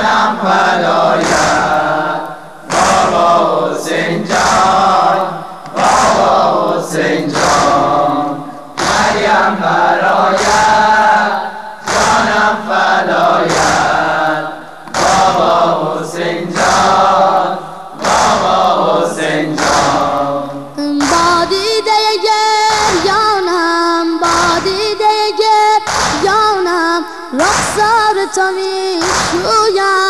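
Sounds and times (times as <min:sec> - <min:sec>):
group of voices chanting: 0:00.0 - 0:21.6
regular beats: 0:00.0 - 0:23.4.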